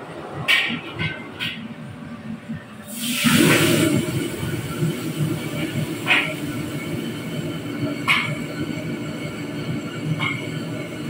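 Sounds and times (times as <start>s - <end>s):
food sizzling in hot wok: 2.9s - 7.4s
wok burner rushing: 2.9s - 9.0s.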